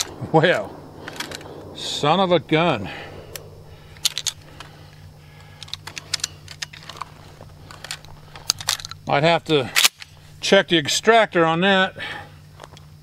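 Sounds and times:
shotgun action clicking and rattling: 5.5 - 9.1.

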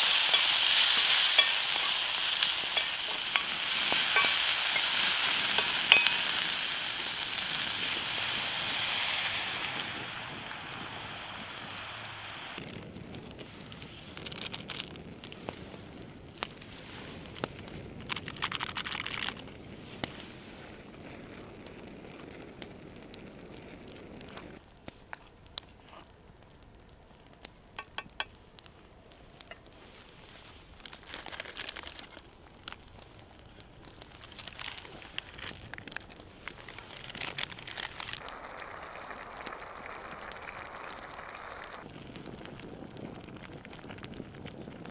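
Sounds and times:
sauce simmering and sputtering: 0.0 - 12.7, 34.0 - 44.9
pops and crackles: 0.0 - 44.9
packet crinkling: 14.0 - 15.6, 17.2 - 19.8, 29.8 - 41.3.

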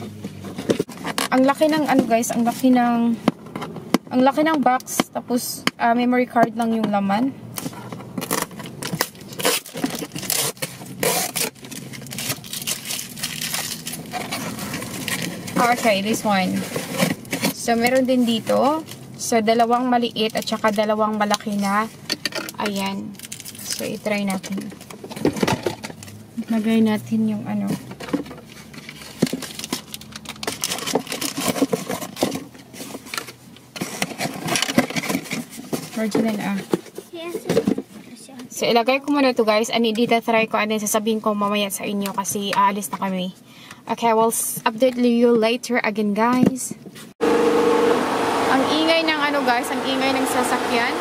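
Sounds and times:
cardboard scraping and rustling: 0.0 - 3.8, 7.6 - 19.0, 27.5 - 38.2
packing tape peeling and tearing: 7.6 - 15.7, 23.1 - 23.8, 28.5 - 32.4.

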